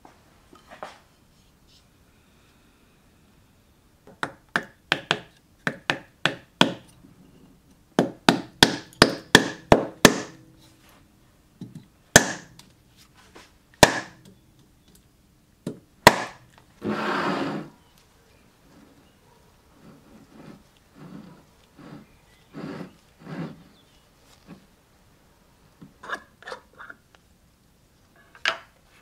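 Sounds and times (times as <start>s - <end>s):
mallet knocking wooden wedge: 4.1s - 6.9s, 8.0s - 10.5s, 12.2s - 12.6s, 13.8s - 14.2s, 15.7s - 16.4s.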